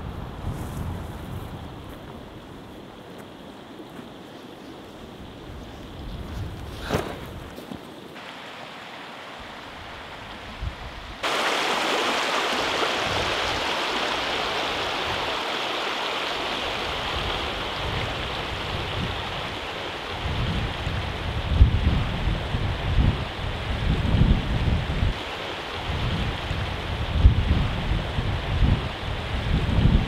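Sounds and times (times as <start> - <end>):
wind buffeting microphone: 0.0 - 3.2, 4.2 - 7.6, 9.5 - 30.0
rushing stream water: 8.0 - 30.0.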